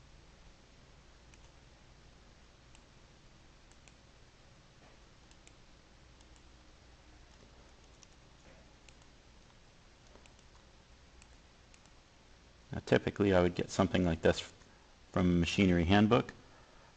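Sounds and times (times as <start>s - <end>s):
low hum and hiss: 0.0s - 16.9s
computer mouse clicks: 1.3s - 1.6s, 3.7s - 4.0s, 5.2s - 5.6s, 6.2s - 6.5s, 7.3s - 12.0s.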